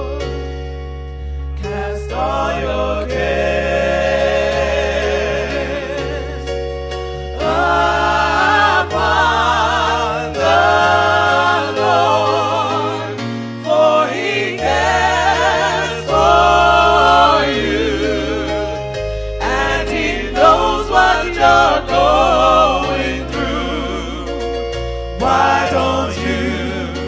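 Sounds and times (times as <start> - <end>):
gospel choir singing in harmony: 0.0 - 27.0
held bass notes: 0.0 - 27.0.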